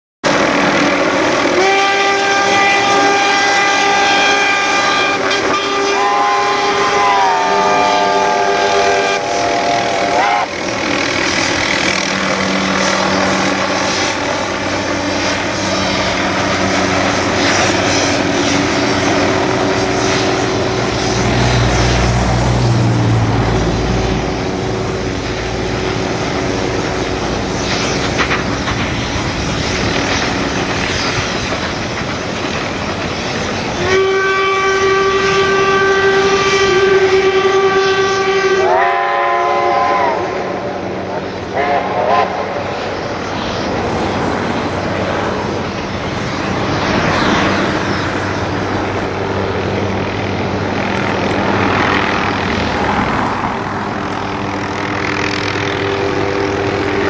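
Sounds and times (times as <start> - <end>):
steam exhaust and running noise: 0.3 - 57.0
steam whistle chord: 1.5 - 10.7, 33.8 - 40.7.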